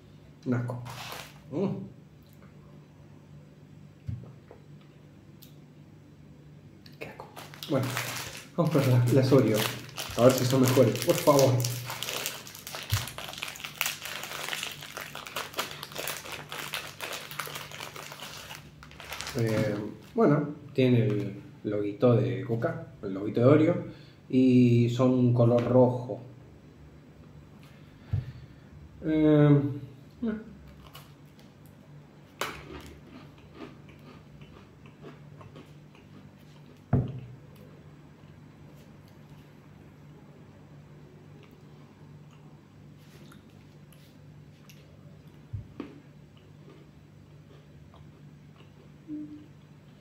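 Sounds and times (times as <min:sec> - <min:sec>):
plastic wrapper crinkling: 0:00.9 - 0:01.5, 0:07.2 - 0:20.2
cookie crunching: 0:07.0 - 0:20.2, 0:32.4 - 0:36.9
chewing crunches: 0:32.4 - 0:37.2.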